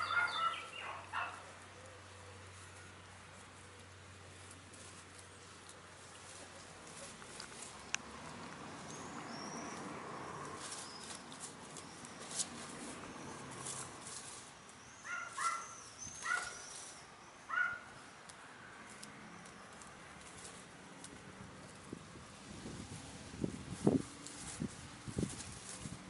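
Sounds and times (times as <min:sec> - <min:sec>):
small birds chirping: 0:00.0 - 0:08.0, 0:08.8 - 0:20.6
rustling and pecking: 0:00.0 - 0:09.0, 0:09.7 - 0:17.0, 0:18.2 - 0:26.0.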